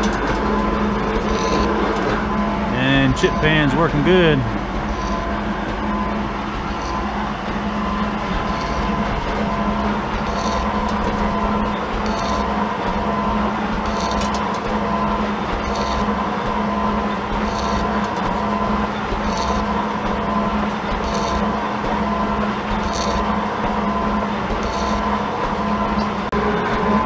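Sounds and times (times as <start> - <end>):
metal shaper clatter: 0.0 - 2.3
motor hum: 0.0 - 27.0.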